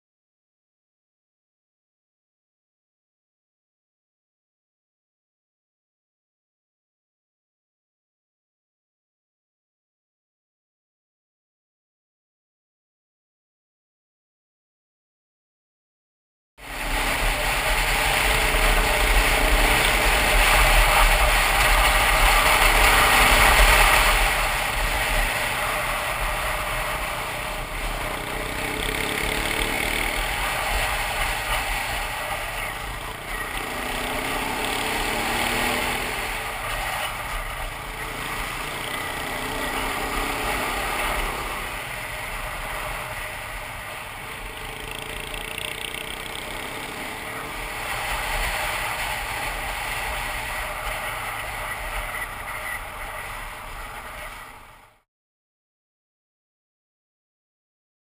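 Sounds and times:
motorcycle engine revving: 0:16.6 - 0:55.0.

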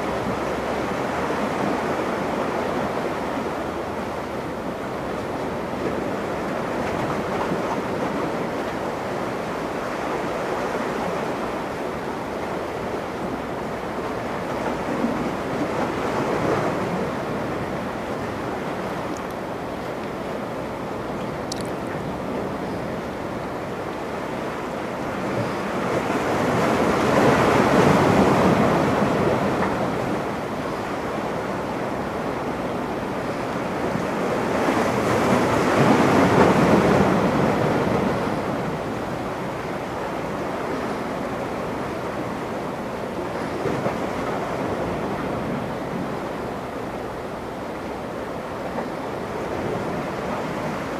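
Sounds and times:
sea surf rushing: 0:00.0 - 0:50.9.

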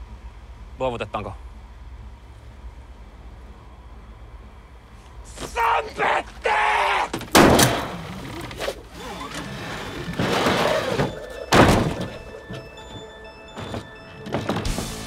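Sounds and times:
heavy thunks: 0:07.1 - 0:15.0
film score music: 0:09.3 - 0:15.0.

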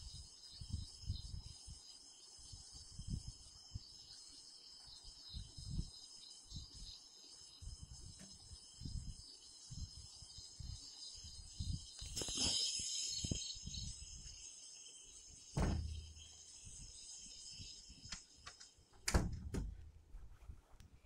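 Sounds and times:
crickets chirring: 0:00.0 - 0:19.8
dull thumps: 0:15.6 - 0:16.2.

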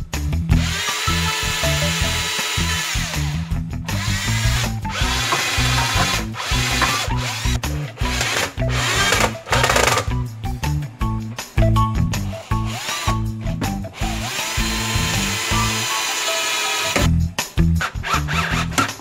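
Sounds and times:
background music beat: 0:00.0 - 0:19.0
cordless drill boring into wood: 0:00.5 - 0:10.1, 0:12.4 - 0:13.2, 0:14.0 - 0:17.1.

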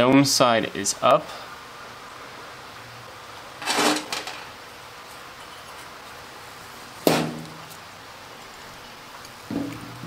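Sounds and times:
metal part clattering on metal: 0:03.6 - 0:04.5.

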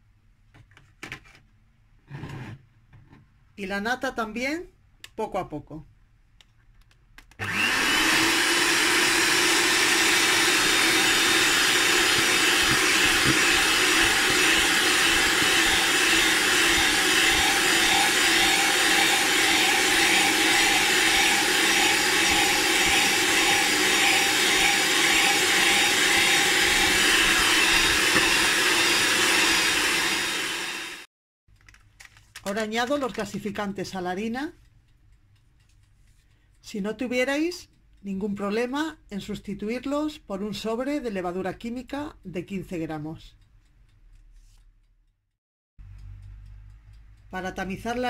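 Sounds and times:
electric hand mixer whisking: 0:07.4 - 0:31.1.

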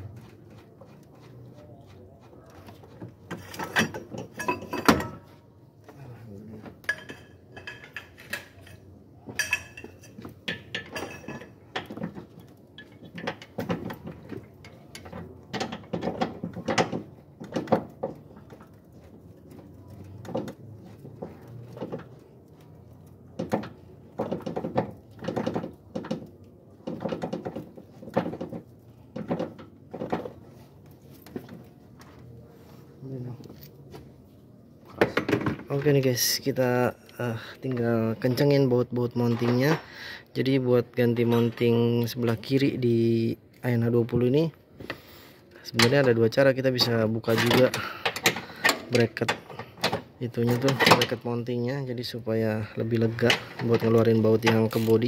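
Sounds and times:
metal tools clinking: 0:03.5 - 0:05.2, 0:06.9 - 0:11.9.

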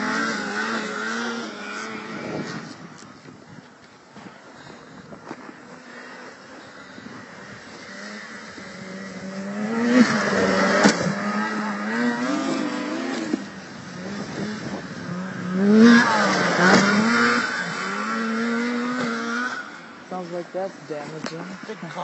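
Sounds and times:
snowmobile engines revving: 0:00.0 - 0:22.0.

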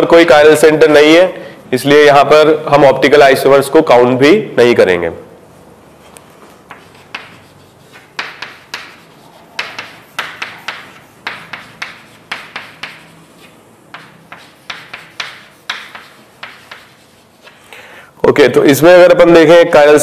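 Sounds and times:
pen scratching while writing: 0:06.7 - 0:17.6.

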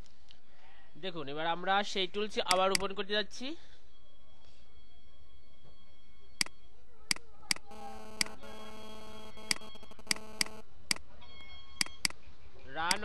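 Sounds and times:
computer mouse clicks: 0:02.5 - 0:02.9, 0:09.4 - 0:10.6, 0:11.8 - 0:12.2
low mains hum: 0:03.2 - 0:13.0
buzzing electrical tone: 0:07.5 - 0:10.6.

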